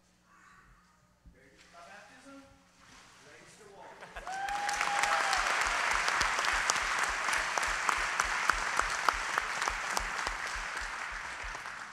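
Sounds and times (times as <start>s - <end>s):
congregation applauding: 4.2s - 11.9s.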